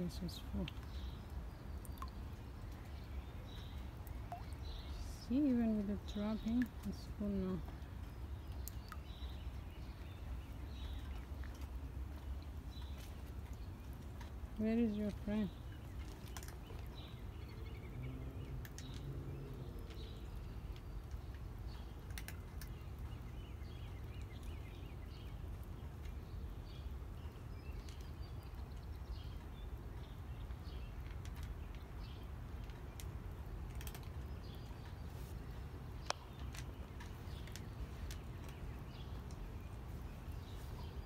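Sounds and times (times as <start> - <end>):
cat crunching food: 32.5 - 34.8, 36.1 - 39.7.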